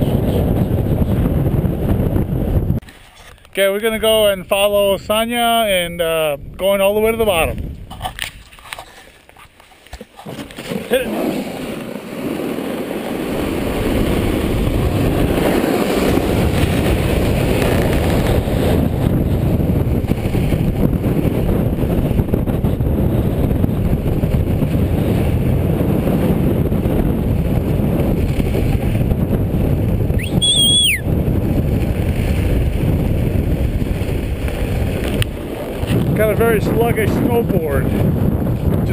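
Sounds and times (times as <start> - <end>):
snowboard sliding over snow: 0.0 - 3.2, 7.7 - 30.1, 31.1 - 38.9
wind buffeting microphone: 0.0 - 9.0, 10.1 - 38.9
high whistle-like tone: 30.1 - 31.1.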